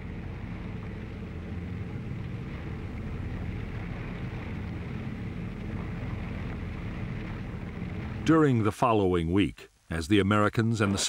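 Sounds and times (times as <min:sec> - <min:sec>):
boat engine droning: 0:00.0 - 0:09.5.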